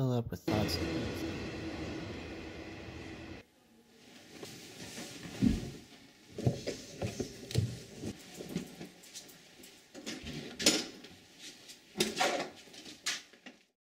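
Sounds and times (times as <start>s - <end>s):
clothing rustling: 4.0s - 10.0s.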